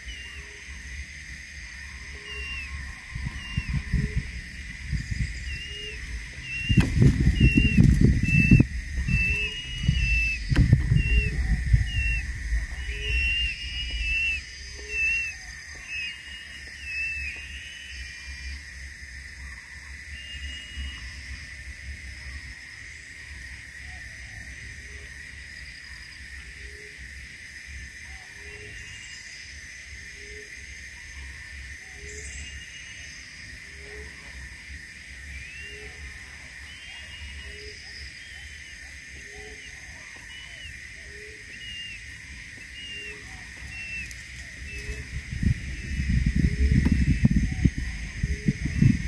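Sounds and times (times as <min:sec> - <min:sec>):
high insect drone: 0:00.0 - 0:49.0
low rumble: 0:02.8 - 0:15.9
short high bird chirps: 0:05.5 - 0:12.2.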